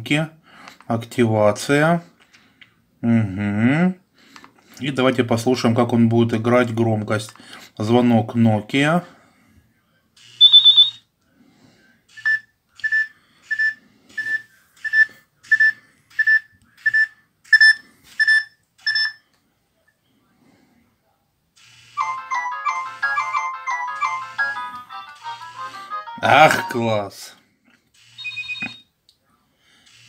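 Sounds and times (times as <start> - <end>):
evenly spaced beeps: 10.4 - 11.0, 12.1 - 19.2, 22.0 - 27.0, 28.0 - 28.8
polyphonic ringtone melody: 22.0 - 27.1, 28.2 - 28.8
short high tone: 22.0 - 27.1.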